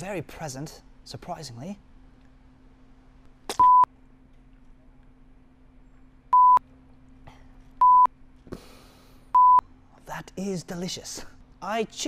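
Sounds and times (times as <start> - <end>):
faint steady hum: 0.0 - 12.0
short bleeps: 3.6 - 3.9, 6.4 - 6.6, 7.8 - 8.1.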